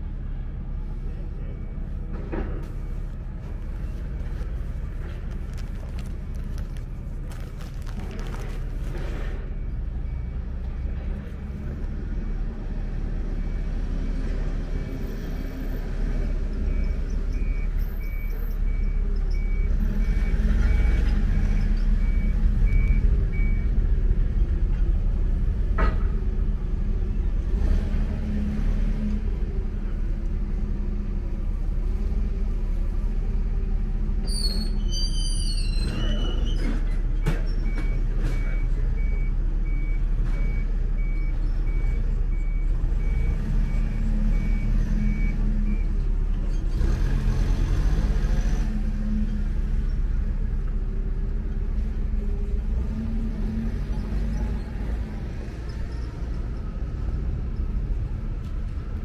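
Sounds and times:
low engine rumble: 0.0s - 59.0s.

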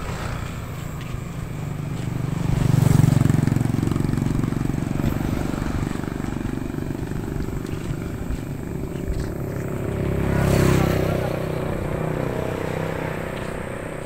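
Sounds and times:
vehicle engine passing by: 0.0s - 14.0s.

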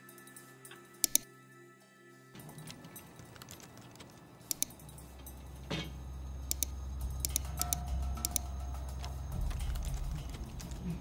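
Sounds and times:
low droning background music: 0.0s - 11.0s
keyboard keystrokes clicking: 2.6s - 4.8s, 6.5s - 10.8s.

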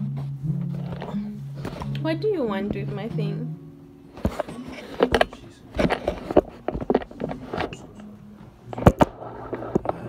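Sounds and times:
phone handling knocks and rubbing: 4.2s - 7.9s.

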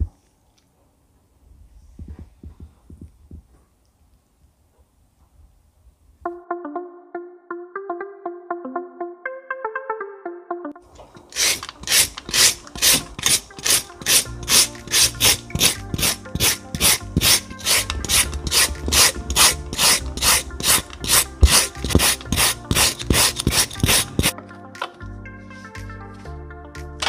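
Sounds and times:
slicer rasping through vegetables: 11.0s - 24.3s.

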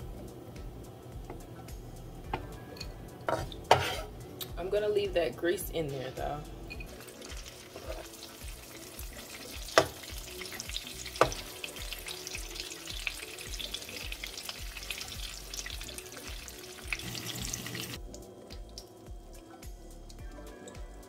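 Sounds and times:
sausage sizzling in a pan: 6.9s - 20.1s.

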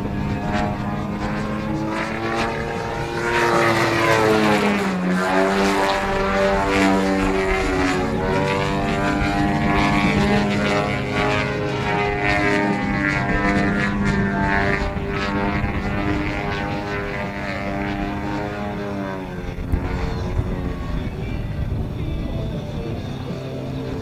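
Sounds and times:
model plane two-stroke engine: 0.0s - 24.0s.

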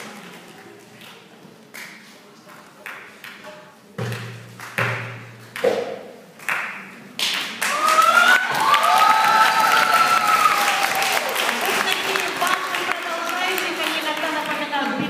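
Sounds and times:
audience applause: 7.6s - 15.0s
high-pitched cheering: 7.7s - 11.7s.

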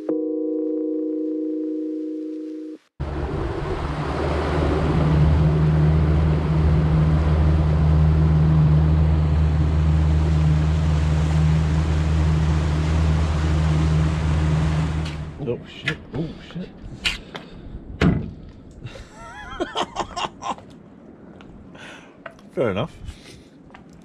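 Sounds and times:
boat engine droning: 3.0s - 16.4s
wind and water rushing: 3.0s - 20.4s.

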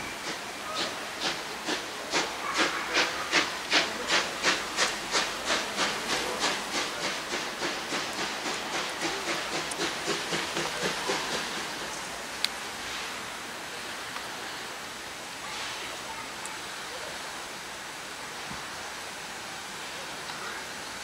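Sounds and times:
steam locomotive exhaust chuffs: 0.0s - 12.1s
steam hissing: 0.0s - 21.0s.

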